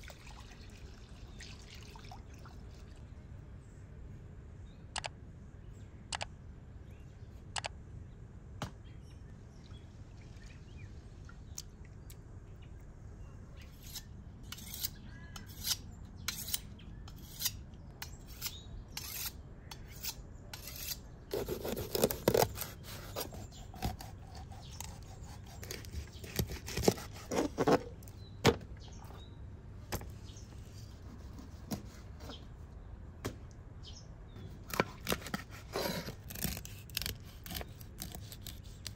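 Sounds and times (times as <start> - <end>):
knife cutting on wooden board: 20.6 - 27.9, 31.1 - 32.4, 34.7 - 38.9.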